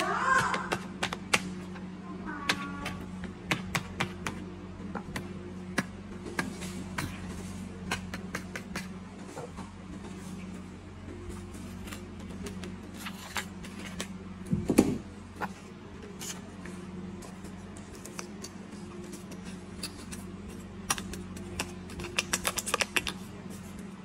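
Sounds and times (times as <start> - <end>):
scissors snipping paper: 17.4 - 23.2.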